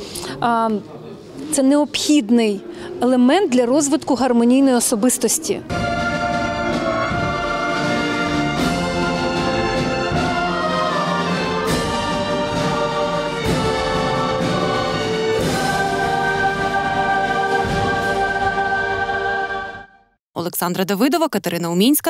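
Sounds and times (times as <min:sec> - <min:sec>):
small orchestra playing: 0:05.7 - 0:19.9
mixed choir singing: 0:05.7 - 0:20.0.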